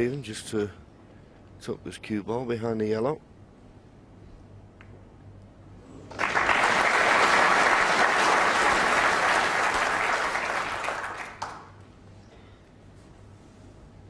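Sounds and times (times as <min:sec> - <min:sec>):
audience applauding: 0:06.1 - 0:11.8.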